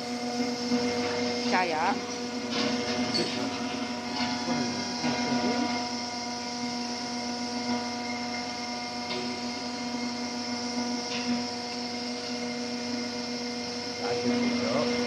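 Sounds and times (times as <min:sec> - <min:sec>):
roll-forming machine humming: 0:00.0 - 0:15.0.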